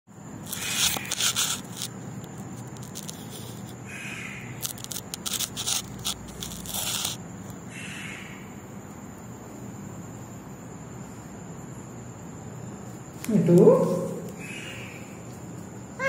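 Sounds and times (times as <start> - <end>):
bird scraping in a wire cage: 0.4 - 3.8, 4.6 - 7.2.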